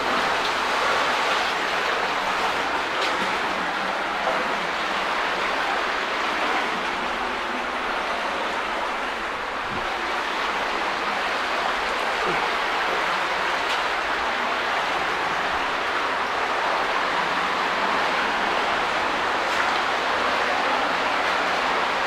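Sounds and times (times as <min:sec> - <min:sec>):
cave stream flowing: 0:00.0 - 0:22.0.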